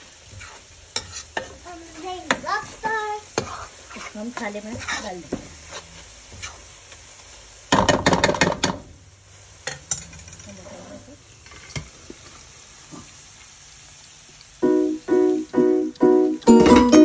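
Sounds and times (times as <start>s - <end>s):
spatula scraping a pan: 0.2s - 6.7s.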